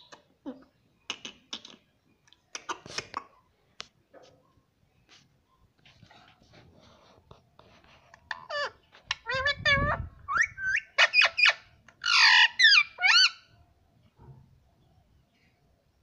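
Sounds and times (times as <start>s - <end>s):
parakeet chirps and squawks: 8.2s - 13.6s.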